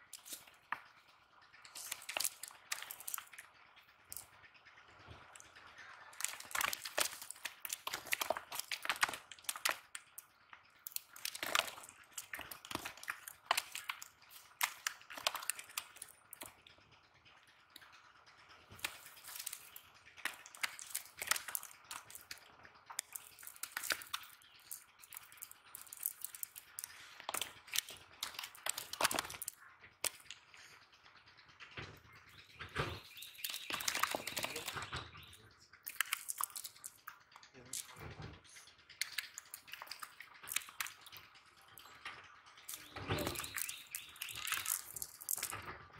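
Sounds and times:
net mesh rustling and crackling: 1.7s - 3.3s, 6.1s - 10.1s, 10.8s - 16.5s, 18.7s - 30.3s.

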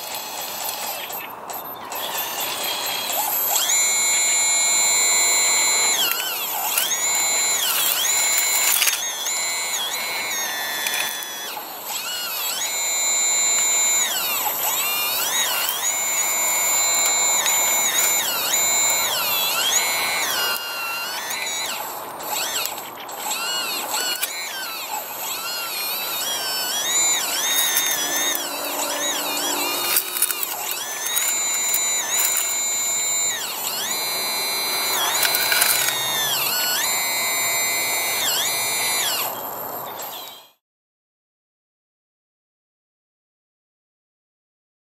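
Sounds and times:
electric motor whining: 0.0s - 40.6s
clicks: 4.9s - 39.4s.

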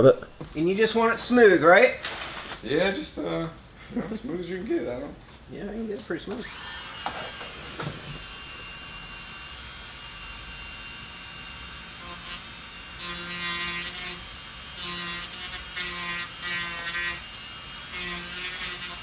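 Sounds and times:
rotary tool whining: 6.3s - 19.0s
sanding bit buzzing on filler: 6.4s - 19.0s.

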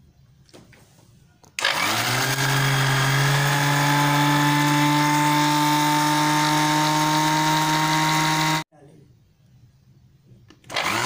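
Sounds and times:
electric blender motor running: 1.6s - 8.6s, 10.7s - 11.0s.

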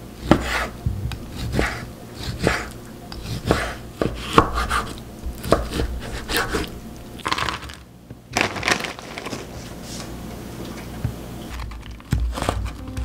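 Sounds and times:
frozen vegetables clattering: 7.2s - 9.6s.

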